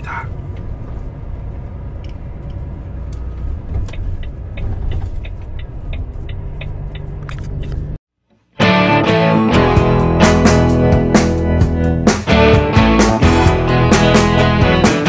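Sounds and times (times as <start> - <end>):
truck engine and road rumble: 0.0 - 8.0.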